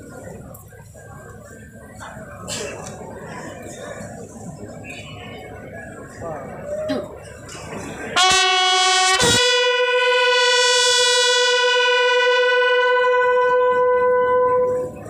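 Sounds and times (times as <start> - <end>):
bugle call: 8.2 - 15.0.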